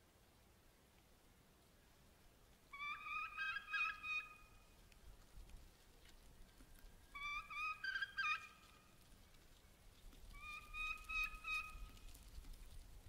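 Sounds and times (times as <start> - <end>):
turkeys calling: 2.7 - 4.7, 6.6 - 8.9, 10.3 - 12.1.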